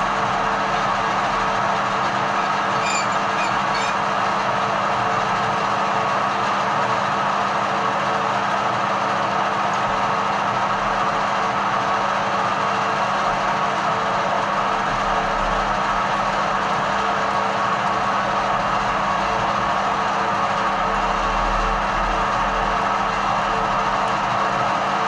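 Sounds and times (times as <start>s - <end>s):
metal lathe humming: 1.0s - 4.9s.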